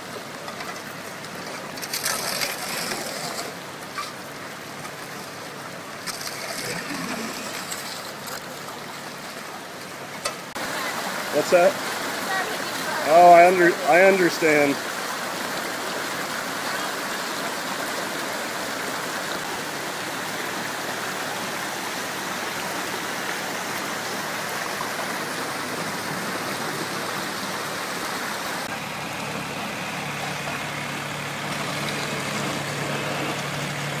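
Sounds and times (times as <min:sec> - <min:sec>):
rushing floodwater: 0:00.0 - 0:34.0
tractor engine running: 0:19.0 - 0:34.0.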